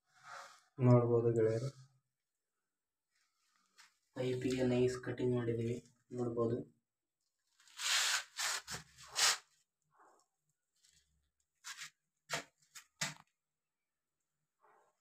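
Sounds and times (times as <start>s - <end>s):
rubbing and scraping: 7.6s - 9.5s, 11.6s - 13.1s.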